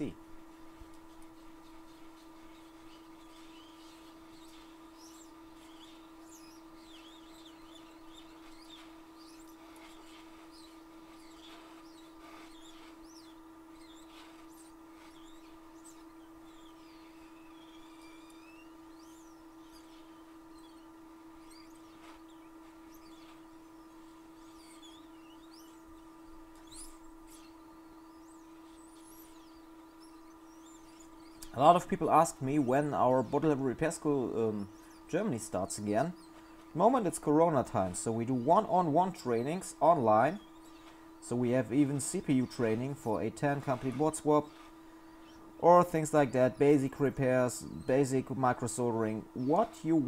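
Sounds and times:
small bird chirping: 0.0 - 50.0
steady electrical hum: 0.0 - 50.0.

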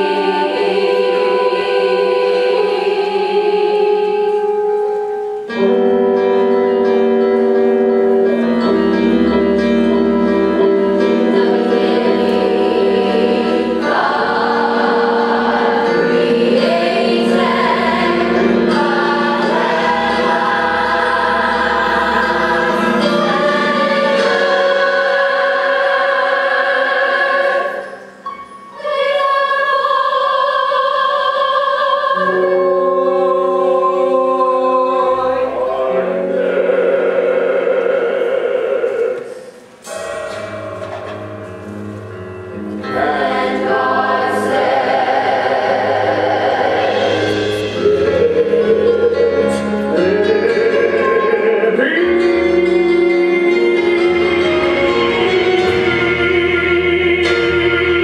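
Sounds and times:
choir singing held chords: 0.0 - 58.0.

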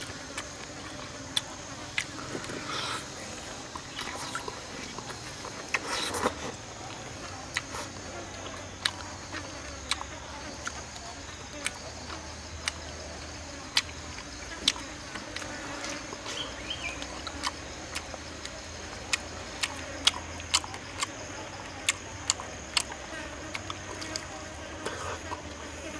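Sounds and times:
high-pitched insect buzz: 14.4 - 17.6.

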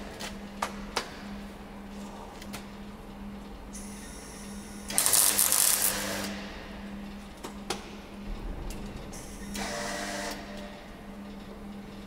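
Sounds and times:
steady low hum: 0.0 - 12.0
arc welding bursts: 5.0 - 6.3.

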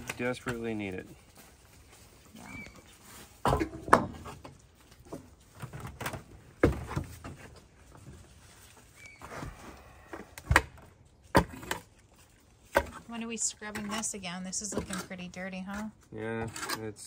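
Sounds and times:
knocks and thumps on wooden decking: 3.4 - 8.2.

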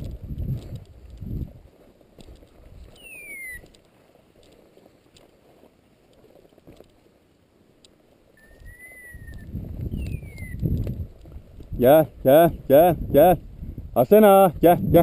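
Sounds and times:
footsteps through dry scrub: 0.0 - 13.1
whistled calls: 2.9 - 3.8, 8.4 - 10.7.

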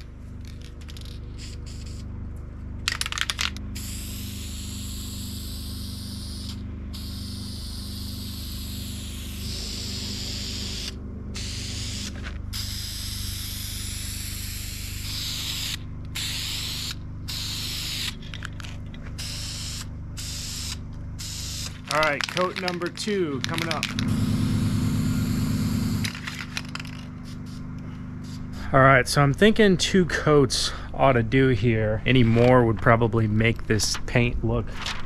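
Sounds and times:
spray can hissing: 1.0 - 2.1, 3.8 - 18.2, 19.2 - 28.5.

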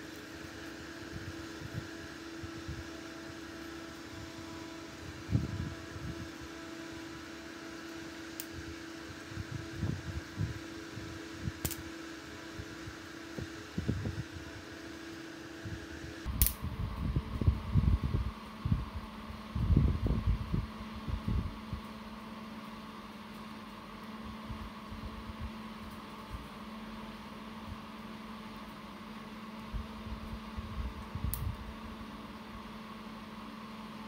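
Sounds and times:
cooling fan humming: 0.0 - 34.0
sharp click: 11.6 - 11.8, 16.3 - 16.6.

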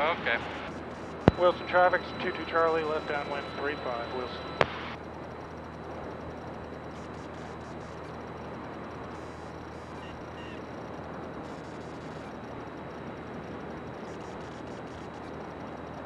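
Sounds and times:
propeller plane engine drone: 0.0 - 16.0.

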